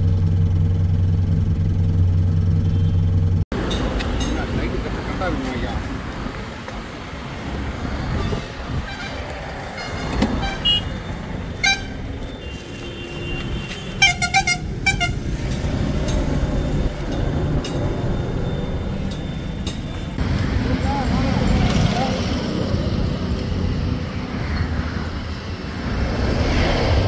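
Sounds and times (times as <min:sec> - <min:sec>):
road traffic rumbling: 0:00.0 - 0:27.0
vehicle horn short toots: 0:02.6 - 0:03.1, 0:09.8 - 0:10.9, 0:11.6 - 0:15.2.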